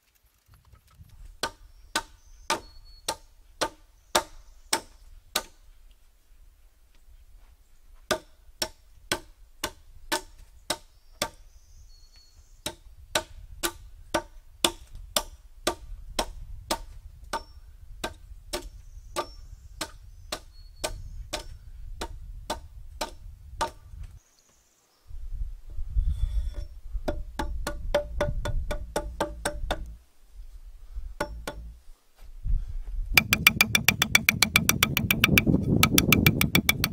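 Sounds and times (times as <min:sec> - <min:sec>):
hand tool striking timber: 0:01.4 - 0:05.6, 0:08.1 - 0:11.4, 0:12.6 - 0:17.4, 0:18.0 - 0:23.8, 0:26.6 - 0:30.0, 0:31.2 - 0:31.8, 0:33.2 - 0:36.9.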